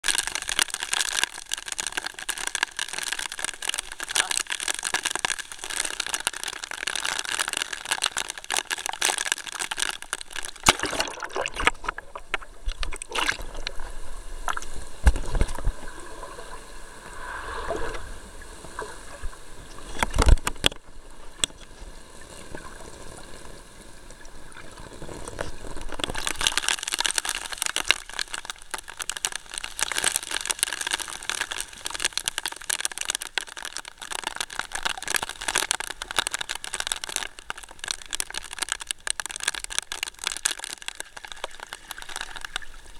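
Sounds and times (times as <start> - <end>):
heavy rain on water: 0.0 - 10.7
underwater gurgling: 0.0 - 42.9.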